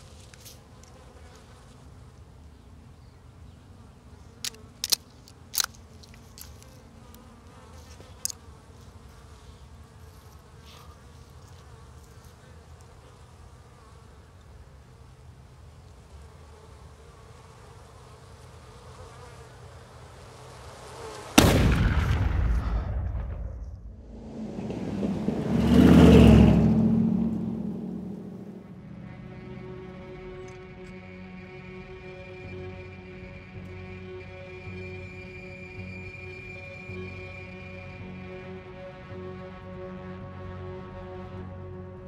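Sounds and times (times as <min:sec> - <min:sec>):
insects buzzing: 0:00.0 - 0:22.0, 0:24.0 - 0:42.0
rifle shot: 0:21.4 - 0:24.0.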